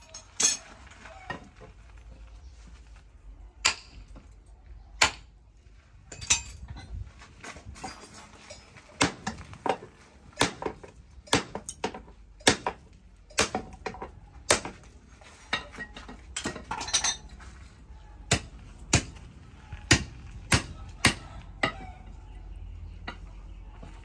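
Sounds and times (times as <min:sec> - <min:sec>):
hammer clanking on anvil: 0:10.4 - 0:14.8.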